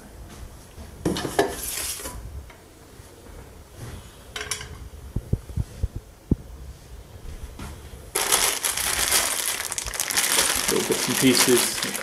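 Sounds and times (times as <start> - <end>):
plastic wrapping rustling: 8.1 - 12.0.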